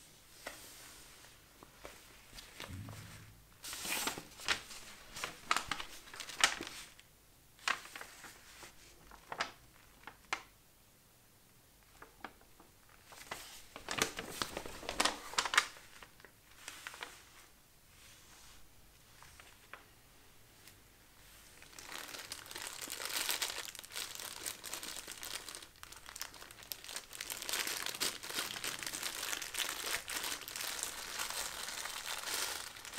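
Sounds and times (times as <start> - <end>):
paper crinkling and rustling: 3.6 - 7.0, 7.6 - 10.5, 11.8 - 17.5, 21.3 - 32.9.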